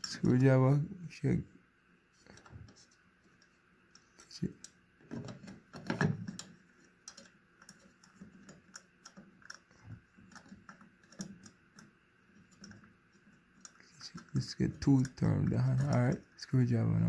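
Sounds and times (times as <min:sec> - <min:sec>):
small metal clicks and taps: 0:03.4 - 0:12.9.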